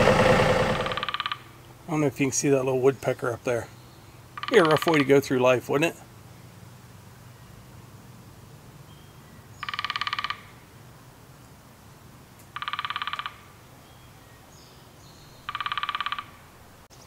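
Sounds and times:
woodpecker drumming: 0.0 - 1.6, 4.3 - 5.2, 9.6 - 10.6, 12.5 - 13.5, 15.4 - 16.4.

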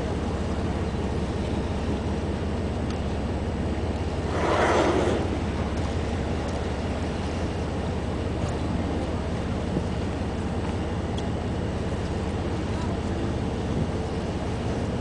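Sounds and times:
boat engine humming: 0.0 - 15.0
whale blowing: 4.0 - 6.3.

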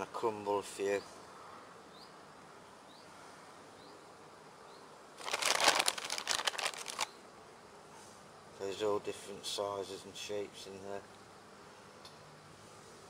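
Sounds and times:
hand rummaging in hard pellets: 5.2 - 7.1
plastic bag crinkling: 5.2 - 7.1.

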